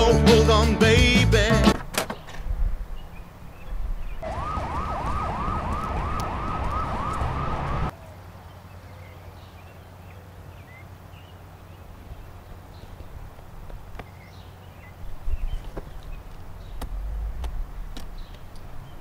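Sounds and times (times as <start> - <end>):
siren yelping: 4.2 - 7.9.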